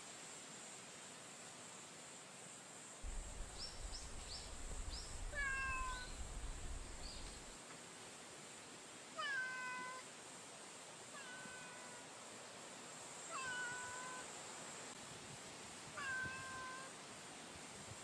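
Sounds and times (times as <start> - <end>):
cat meowing: 5.3 - 6.2, 9.2 - 10.0, 11.2 - 12.0, 13.3 - 14.3, 16.0 - 16.9.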